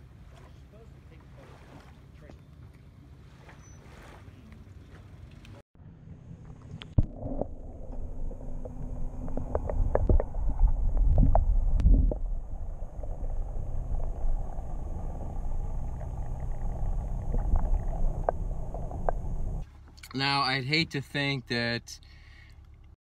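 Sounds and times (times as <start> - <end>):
muffled underwater rumble: 4.3 - 19.6.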